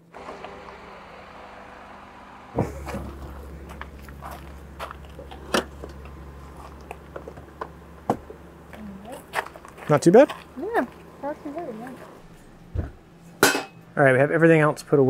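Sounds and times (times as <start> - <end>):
car doors opening: 0.1 - 8.7
knocks clicks and clunks: 2.5 - 10.5.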